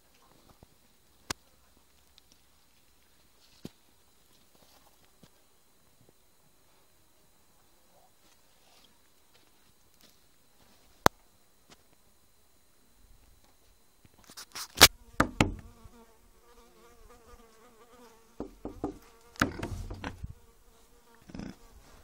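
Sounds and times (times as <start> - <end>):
rustles: 0.0 - 7.0, 7.6 - 12.0
insect buzzing: 14.1 - 22.0
sharp knocks: 15.2 - 15.7, 18.4 - 20.2.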